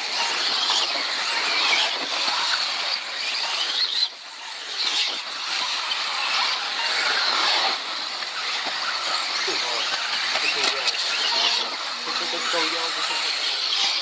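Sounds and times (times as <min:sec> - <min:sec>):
model car motors whining: 0:00.0 - 0:14.0.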